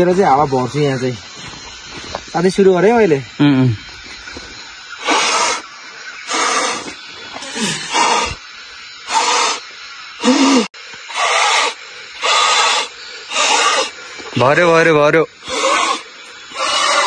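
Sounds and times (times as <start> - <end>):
person blowing into mattress valve: 3.4 - 14.2, 15.4 - 17.0.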